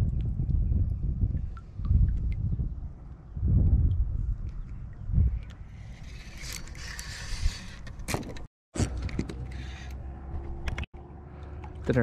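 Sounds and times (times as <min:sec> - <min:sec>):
wind rumble on microphone: 0:00.0 - 0:09.3.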